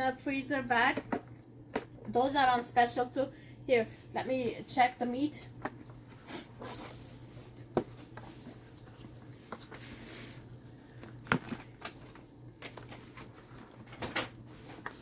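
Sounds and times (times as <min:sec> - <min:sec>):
steady low hum: 0:00.0 - 0:15.0
plastic containers clicking and knocking: 0:00.8 - 0:02.2, 0:11.0 - 0:13.0.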